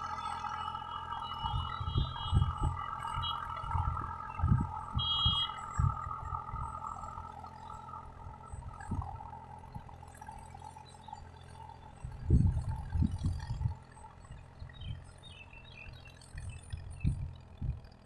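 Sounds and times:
distant tractor engine running: 0.0 - 18.0
wind buffeting microphone: 1.2 - 6.9, 12.0 - 13.8, 16.4 - 17.9.

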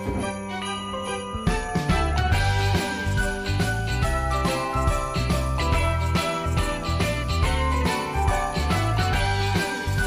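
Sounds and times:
background music: 0.0 - 10.0
sleigh bells jingling: 0.0 - 10.0.

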